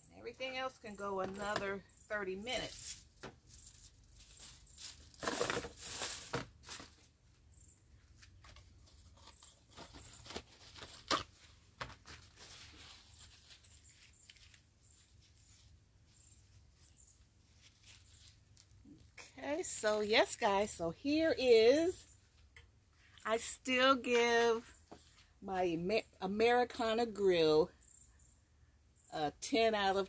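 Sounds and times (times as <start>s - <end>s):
aluminium foil crinkling: 2.6s - 7.1s, 8.1s - 15.8s.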